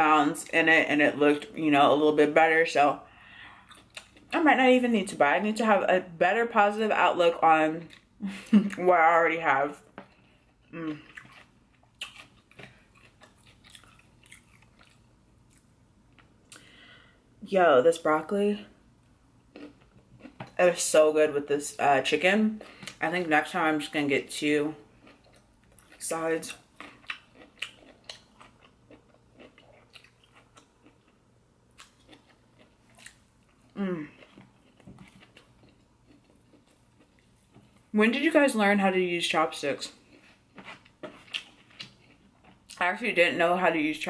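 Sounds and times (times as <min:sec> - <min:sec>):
person chewing food: 0:03.4 - 0:04.3, 0:09.9 - 0:16.8, 0:19.4 - 0:20.6, 0:24.8 - 0:26.0, 0:26.6 - 0:37.9, 0:40.0 - 0:42.8.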